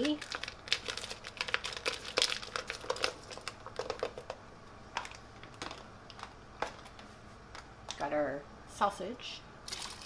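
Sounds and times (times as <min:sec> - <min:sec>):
plastic pouch crinkling: 0:00.0 - 0:04.3.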